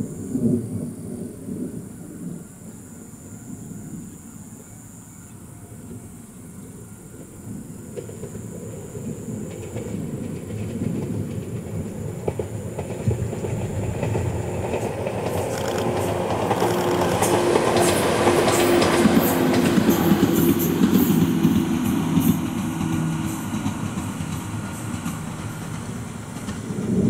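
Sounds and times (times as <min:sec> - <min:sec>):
train wheels clicking over rail joints: 0:07.9 - 0:27.0
train motor hum: 0:14.0 - 0:27.0.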